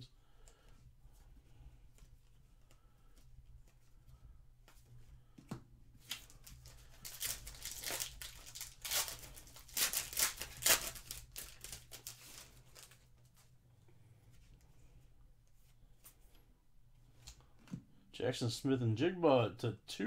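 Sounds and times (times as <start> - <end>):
foil wrapper tearing and crinkling: 6.0 - 13.0.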